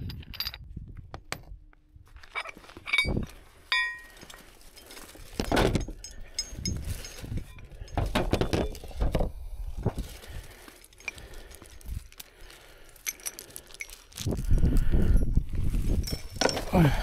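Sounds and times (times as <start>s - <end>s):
metal hardware clinking: 2.2s - 9.2s, 12.9s - 14.2s, 16.0s - 17.0s.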